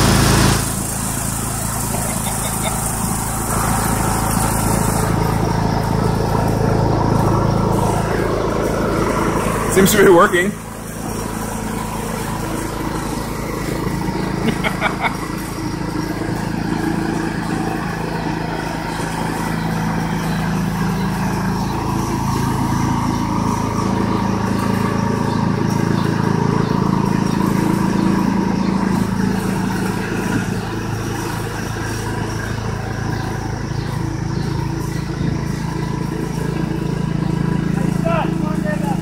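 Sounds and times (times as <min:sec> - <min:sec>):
lawn mower engine running: 0:00.0 - 0:39.0.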